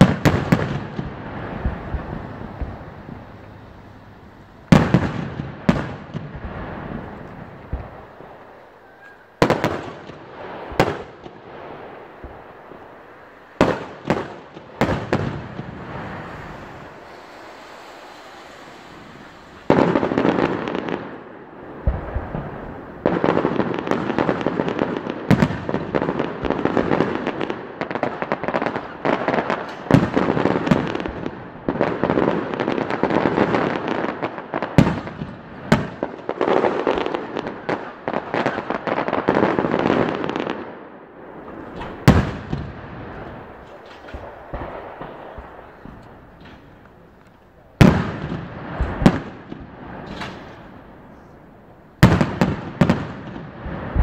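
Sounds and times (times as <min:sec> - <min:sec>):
firework shells bursting: 0:00.0 - 0:23.4, 0:41.4 - 0:54.0
firework crackle: 0:00.0 - 0:54.0.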